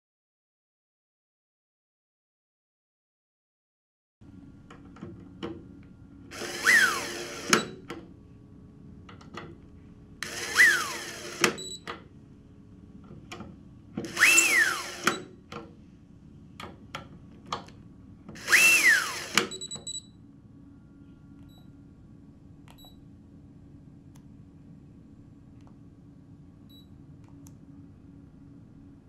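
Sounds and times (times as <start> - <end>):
electric screwdriver motor whine: 6.3 - 7.7, 10.2 - 11.6, 14.1 - 15.2, 18.4 - 19.6
screwdriver clutch click: 10.2 - 11.6, 14.1 - 15.2, 18.4 - 19.6.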